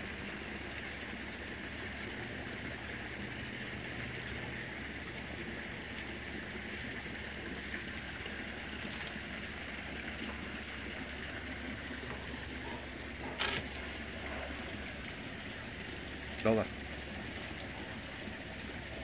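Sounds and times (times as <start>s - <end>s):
outdoor background hiss: 0.0s - 19.0s.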